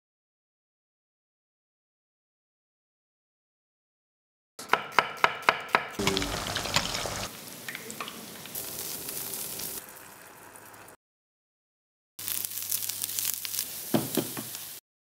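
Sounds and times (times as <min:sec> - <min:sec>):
knife chopping: 0:04.6 - 0:06.2
food sizzling in hot oil: 0:06.0 - 0:11.0, 0:12.2 - 0:14.8.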